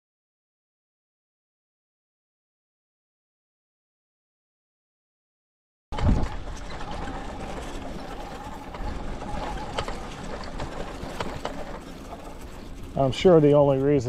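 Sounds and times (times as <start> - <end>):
wind and tyre rolling noise: 5.9 - 14.0
faint electric motor whine: 6.0 - 14.0.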